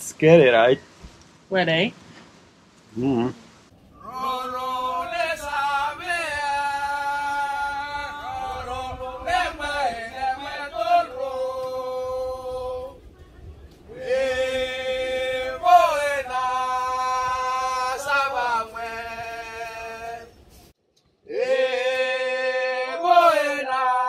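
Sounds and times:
men chanting in unison: 4.0 - 12.9, 13.9 - 20.4, 21.3 - 24.0.

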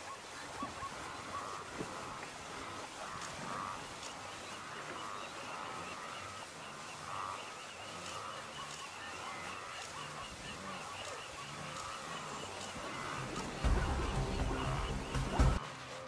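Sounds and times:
wildebeest honking grunts: 1.3 - 3.8.

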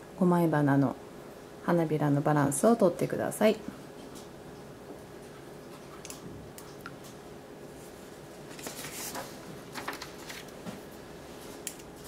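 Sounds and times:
faint steady hum: 0.0 - 12.0
soft rustle of hand movement: 7.7 - 11.6.

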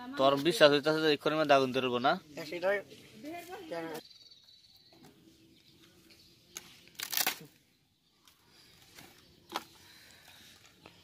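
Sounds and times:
dry wood splinters snapping: 6.9 - 7.5.

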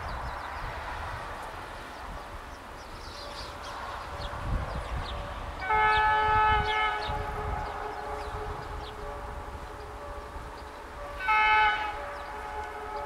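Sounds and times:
birds chirping: 0.0 - 13.0
locomotive horn chord: 3.9 - 13.0.

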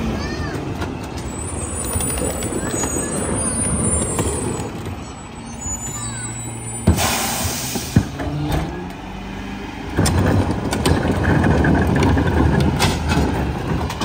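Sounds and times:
garbage truck engine rumble: 0.0 - 14.0
air hissing: 6.5 - 8.1.

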